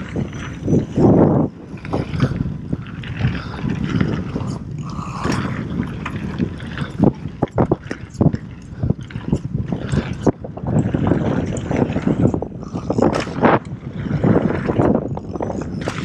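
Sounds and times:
bike rattling and clicking: 0.0s - 16.0s
wind buffeting microphone: 0.0s - 16.0s.

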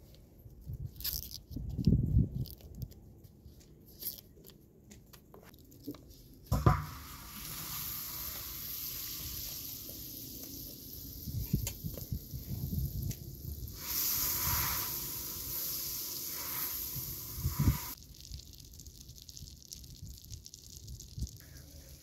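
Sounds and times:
food sizzling: 6.5s - 22.0s.

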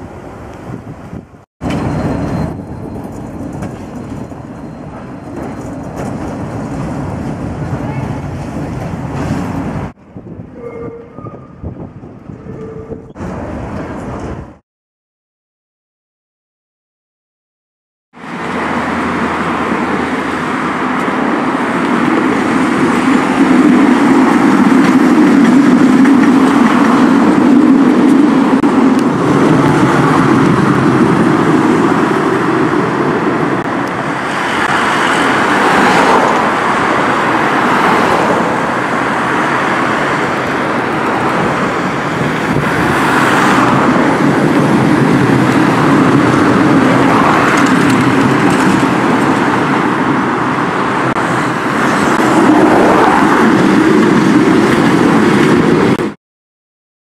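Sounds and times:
tram running on track: 0.0s - 14.6s, 18.2s - 56.2s
road noise from passing cars: 18.2s - 56.2s.

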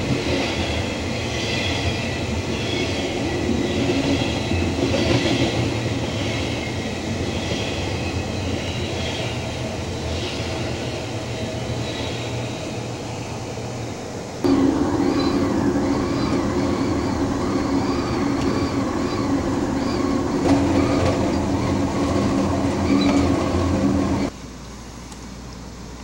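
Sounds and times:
train wheels rumbling on rail: 0.0s - 24.4s
engine drone: 8.2s - 25.0s.

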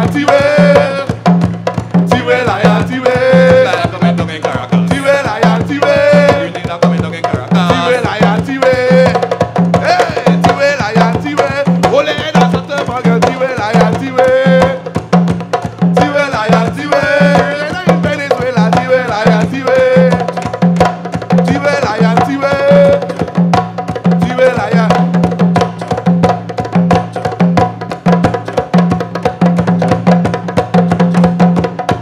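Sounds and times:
voices singing: 0.0s - 1.4s, 2.0s - 14.9s, 15.9s - 23.5s, 24.1s - 25.2s
hand drums playing: 0.0s - 32.0s.

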